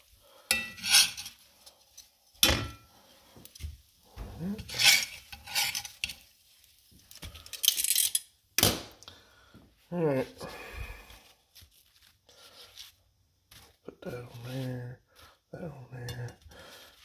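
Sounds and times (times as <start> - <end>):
metal tongs scraping skillet: 0.4 - 8.3.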